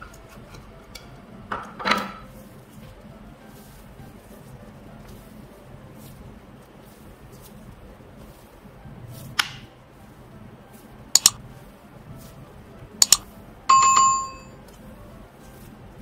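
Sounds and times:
mouse double clicks: 11.2 - 11.4, 13.0 - 13.2
bell ding: 13.7 - 14.6.

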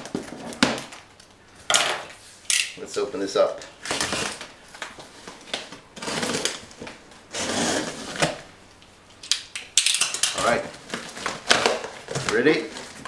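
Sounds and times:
cardboard rubbing: 7.3 - 8.4.

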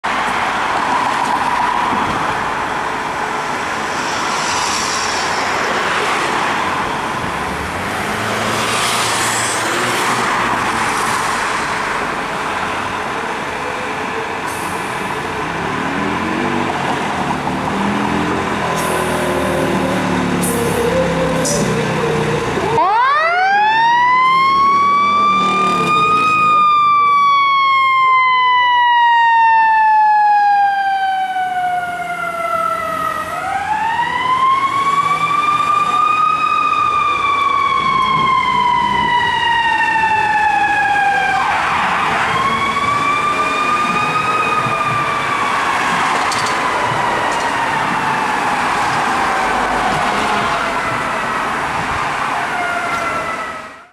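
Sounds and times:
street noise: 0.0 - 53.9
fire engine siren wailing: 0.1 - 53.9
fire engine running: 18.3 - 53.9.

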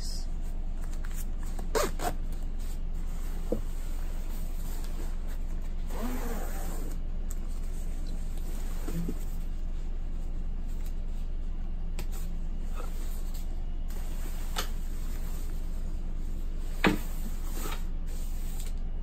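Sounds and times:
steady low hum: 0.0 - 19.0
zipper: 1.7 - 2.2, 5.8 - 7.0.

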